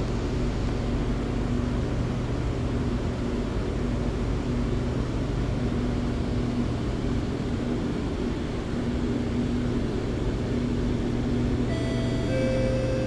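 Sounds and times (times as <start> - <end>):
train car rumble and hum: 0.0 - 13.0
low pulsing tone: 11.7 - 13.0.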